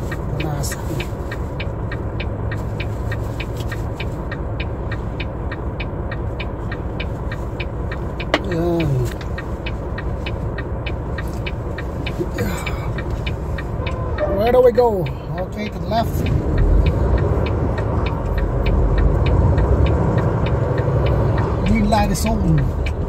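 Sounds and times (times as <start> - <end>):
diesel engine idling: 0.0 - 23.0
light regular ticking: 0.0 - 23.0
man humming: 12.2 - 13.1.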